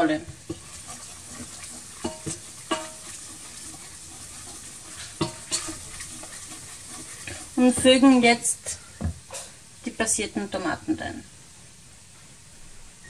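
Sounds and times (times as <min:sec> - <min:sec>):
wooden spoon stirring: 0:00.0 - 0:09.4
roux sizzling in a pot: 0:00.0 - 0:11.8
spoon knocking against pot: 0:01.9 - 0:03.2, 0:05.1 - 0:06.1.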